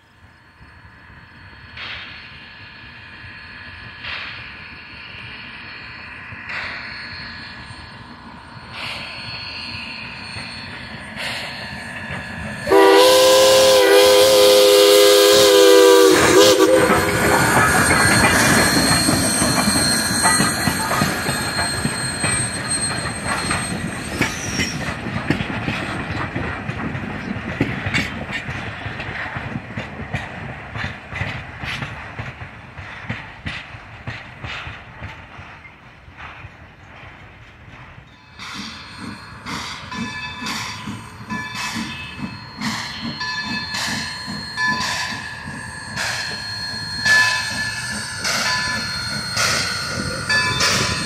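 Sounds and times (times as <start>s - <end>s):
train wheels clicking over rail joints: 1.7s - 2.6s, 3.9s - 51.0s
steam locomotive whistle: 12.6s - 22.4s.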